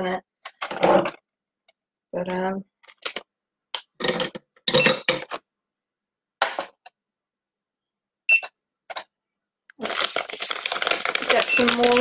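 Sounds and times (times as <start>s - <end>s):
kitchen items clattering: 4.0s - 5.4s, 6.4s - 6.9s, 9.8s - 12.0s
plastic packet crinkling: 9.8s - 12.0s.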